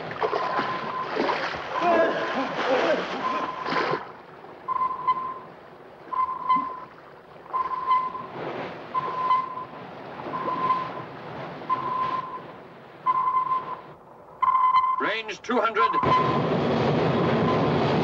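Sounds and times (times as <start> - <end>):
sea noise rushing: 0.0 - 14.0
sonar pings: 4.7 - 5.4, 6.2 - 6.9, 7.5 - 8.3, 9.0 - 9.7, 13.1 - 15.0.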